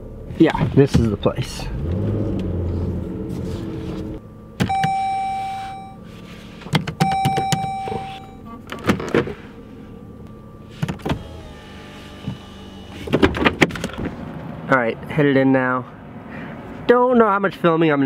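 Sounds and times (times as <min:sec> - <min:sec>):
car dashboard chime: 0:04.6 - 0:06.0, 0:07.0 - 0:08.7
button clicks: 0:07.0 - 0:08.3.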